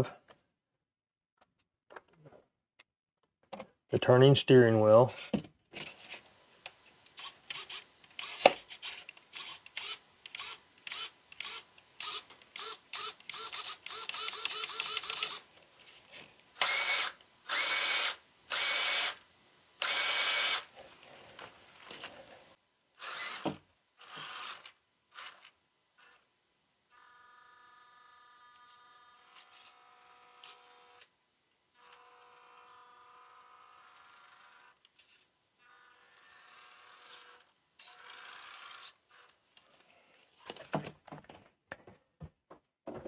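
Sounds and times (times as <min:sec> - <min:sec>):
small electric motor whirring: 0:07.2 - 0:15.5, 0:16.6 - 0:19.2, 0:19.8 - 0:20.7, 0:23.0 - 0:26.2, 0:26.9 - 0:31.1, 0:31.8 - 0:39.4.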